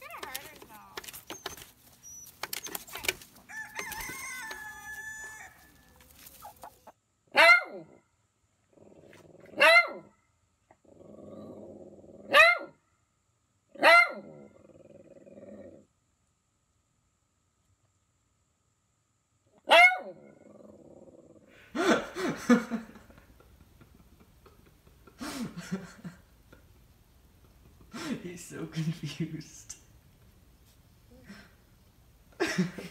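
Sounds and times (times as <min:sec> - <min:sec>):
rooster flapping wings: 0:02.4 - 0:06.8
rooster calling: 0:02.9 - 0:06.9
small dog barking: 0:07.3 - 0:07.9, 0:09.5 - 0:10.1, 0:12.3 - 0:12.8, 0:13.8 - 0:14.3, 0:19.6 - 0:20.2
dog growling low: 0:08.6 - 0:09.6, 0:10.7 - 0:12.3, 0:14.2 - 0:15.9, 0:20.2 - 0:21.7.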